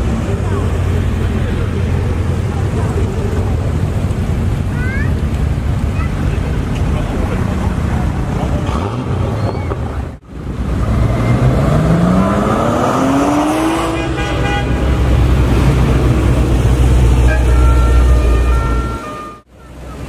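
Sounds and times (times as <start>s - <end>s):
car engine accelerating: 0.0s - 20.0s
car horn toots: 13.7s - 15.2s, 17.2s - 20.0s.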